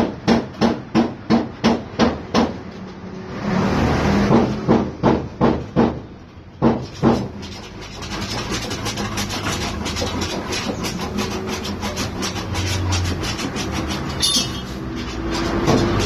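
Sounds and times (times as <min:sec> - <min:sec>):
hand sanding a panel: 0:06.6 - 0:16.0.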